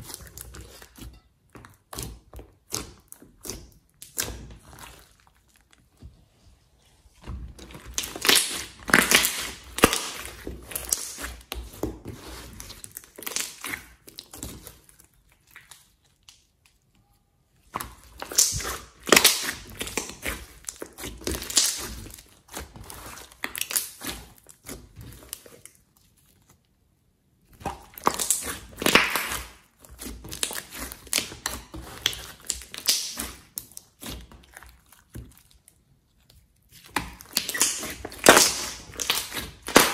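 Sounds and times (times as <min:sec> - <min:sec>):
slime squeezed by hand: 0:36.6 - 0:39.9.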